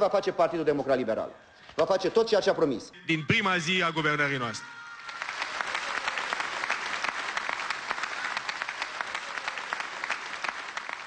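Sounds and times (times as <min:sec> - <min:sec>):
crowd applauding: 0:03.8 - 0:11.0.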